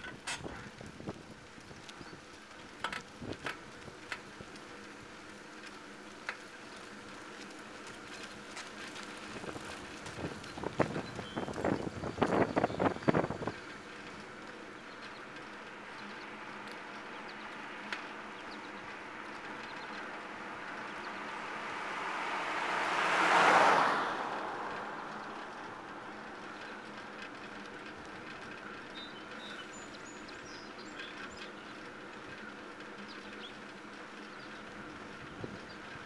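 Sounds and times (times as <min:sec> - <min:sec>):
bicycle rolling on asphalt: 0:00.0 - 0:36.0
car passing: 0:17.4 - 0:28.8.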